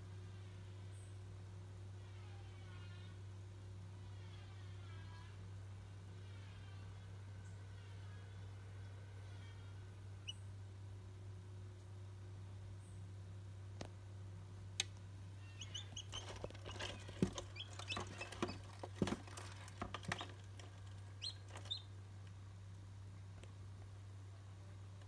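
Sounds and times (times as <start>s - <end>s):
chick peeping: 15.5s - 22.0s.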